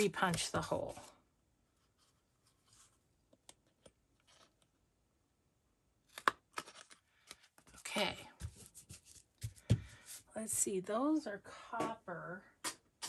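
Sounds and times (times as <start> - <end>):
paper rustling: 6.1 - 10.2.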